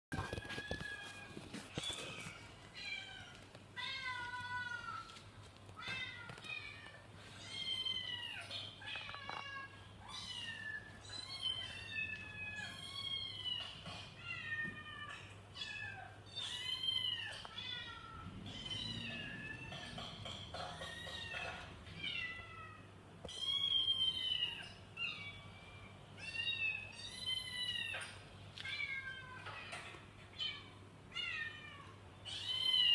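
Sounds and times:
cat meowing: 0:14.3 - 0:32.9.

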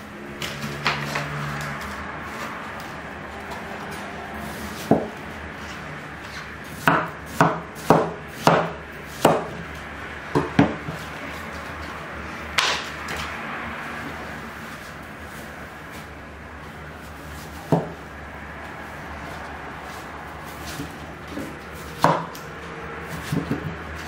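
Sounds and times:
cleaver chopping on wooden board: 0:04.8 - 0:05.1, 0:06.8 - 0:09.6, 0:17.7 - 0:18.0, 0:21.9 - 0:22.5, 0:23.1 - 0:23.7.

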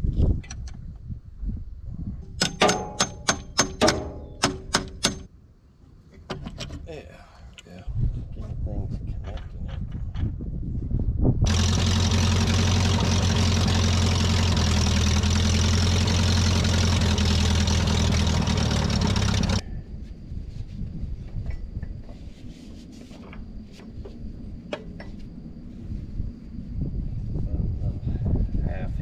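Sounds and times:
motor running steadily: 0:11.5 - 0:19.6.

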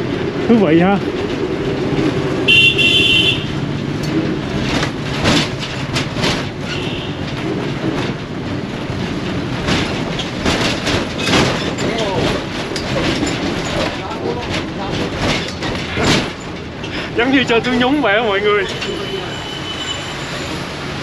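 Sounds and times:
bus body rattling: 0:00.0 - 0:21.0
bus engine and road rumble: 0:00.0 - 0:21.0
horn tooting: 0:02.4 - 0:03.6, 0:06.7 - 0:07.3, 0:18.2 - 0:20.7.

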